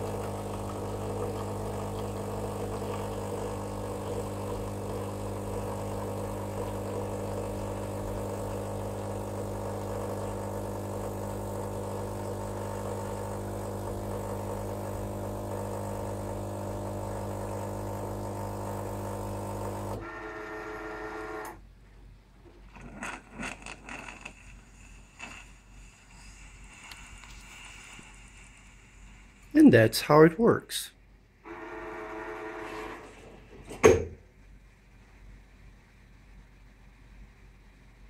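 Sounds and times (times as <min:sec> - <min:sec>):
coffee machine pump humming: 0:00.0 - 0:21.7, 0:31.4 - 0:34.2.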